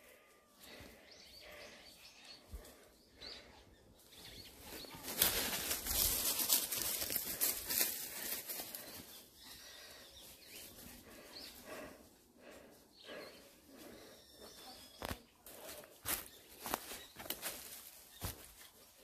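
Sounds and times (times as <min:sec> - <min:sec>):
footsteps through dry leaves: 0:04.6 - 0:09.1, 0:15.5 - 0:19.0.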